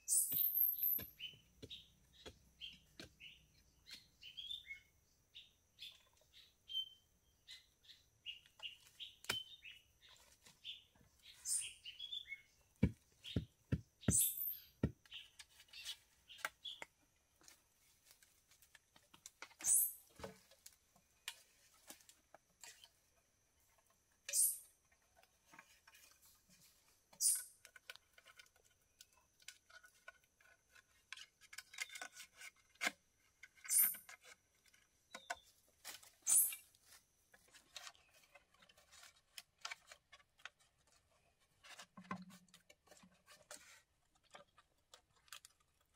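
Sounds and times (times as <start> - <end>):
bamboo clicks and rustles: 8.3 - 13.7, 14.7 - 45.9.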